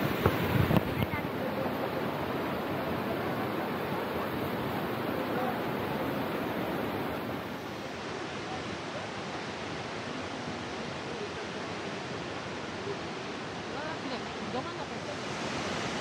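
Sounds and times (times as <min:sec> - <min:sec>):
waterfall rushing: 0:00.0 - 0:16.0.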